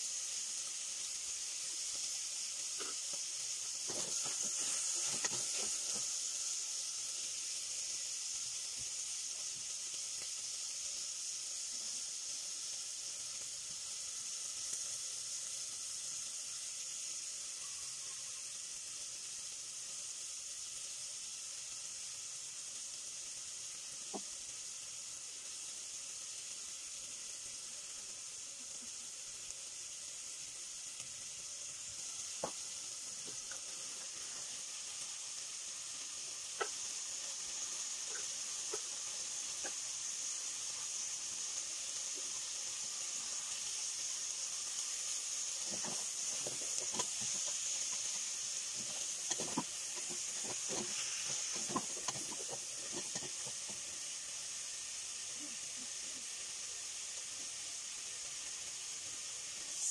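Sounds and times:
food sizzling in a pot: 0.0 - 59.9.

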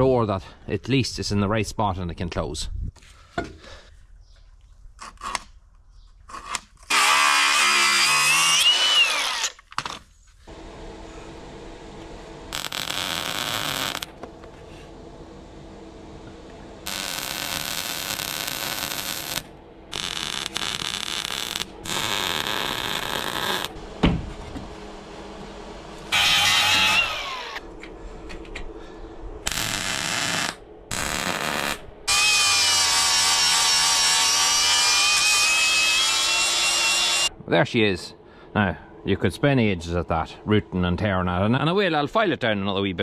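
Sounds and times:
angle grinder cutting steel: 6.9 - 9.6, 12.5 - 14.1, 16.9 - 23.8, 26.1 - 27.6, 29.5 - 37.3
arc welding: 6.9 - 10.0, 12.5 - 14.2, 16.8 - 23.8, 26.1 - 27.6, 29.4 - 37.3.

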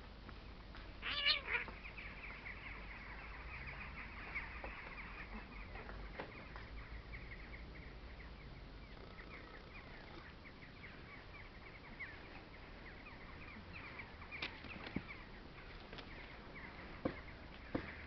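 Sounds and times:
small birds chirping: 0.3 - 18.0.

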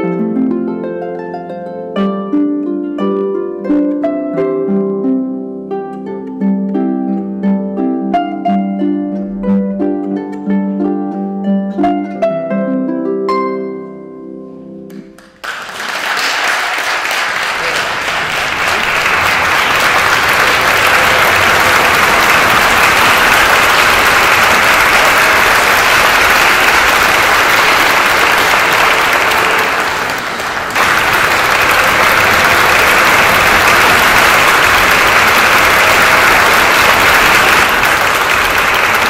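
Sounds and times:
audience applauding: 15.2 - 39.0.

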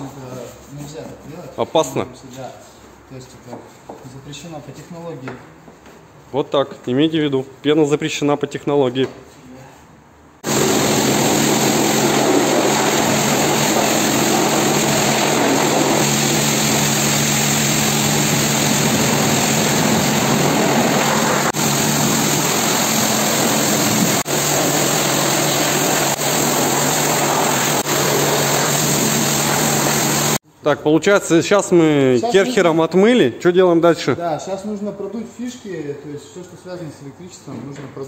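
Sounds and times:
pressure washer spray hiss: 10.4 - 30.4
pump humming: 10.4 - 30.4.

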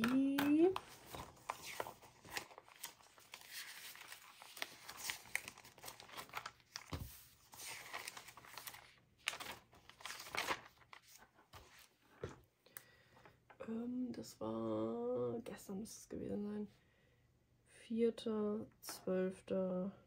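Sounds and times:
notebook pages rustling: 0.0 - 12.5.

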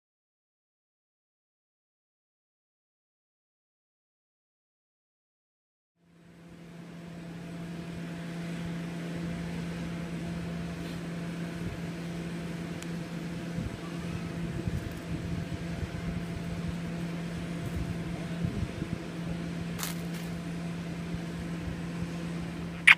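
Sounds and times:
low machine hum: 6.0 - 22.9.

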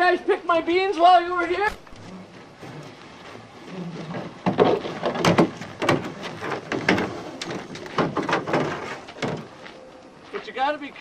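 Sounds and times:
canoes knocking on roof rack: 4.4 - 7.2.

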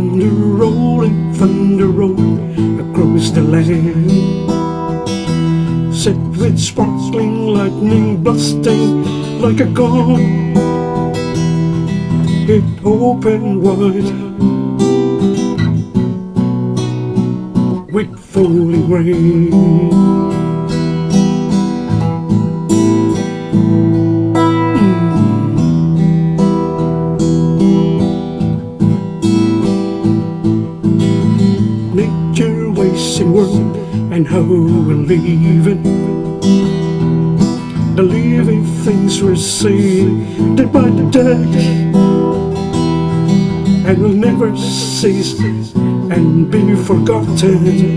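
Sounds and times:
acoustic guitar playing: 0.0 - 47.9.

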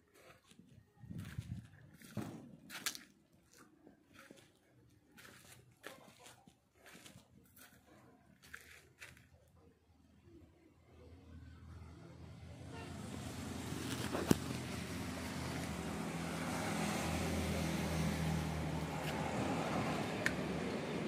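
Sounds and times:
vehicle engine humming: 11.3 - 21.0.

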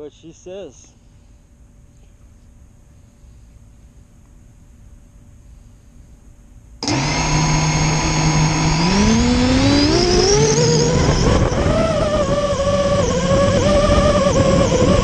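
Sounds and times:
quadcopter motors whining: 6.8 - 15.0.

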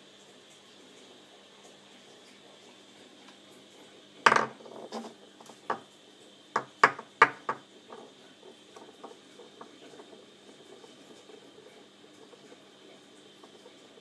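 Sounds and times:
stone knocking on wooden table: 4.3 - 4.6, 6.6 - 7.6.

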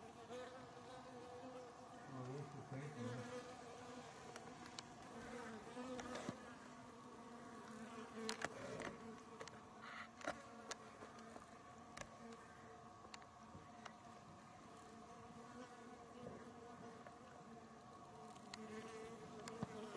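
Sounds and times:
flying insect buzzing: 0.0 - 19.9
faint clicks: 4.3 - 5.1, 18.2 - 18.7.

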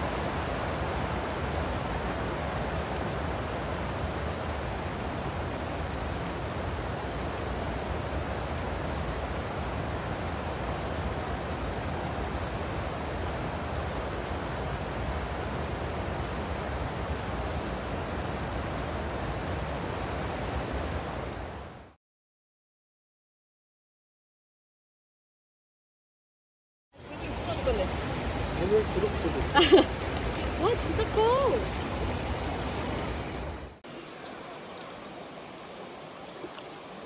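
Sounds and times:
stream running over cobbles: 0.0 - 20.9, 27.0 - 37.0.

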